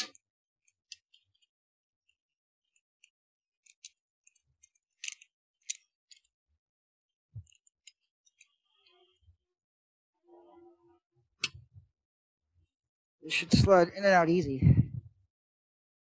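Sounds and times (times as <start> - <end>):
metal parts clicking: 0.0 - 6.4, 7.4 - 9.0.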